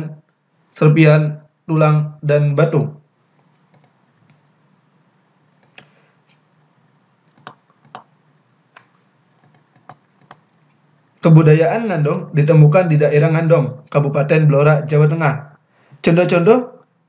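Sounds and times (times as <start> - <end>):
faint low hum: 0.0 - 17.0
computer mouse clicking: 3.6 - 4.4, 5.6 - 6.4, 7.3 - 8.1, 8.8 - 10.6.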